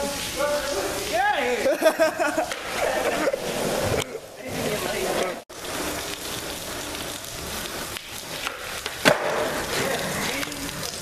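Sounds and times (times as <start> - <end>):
skateboard wheels rolling on concrete: 0.0 - 11.0
skateboard clacking on ground: 2.4 - 11.0.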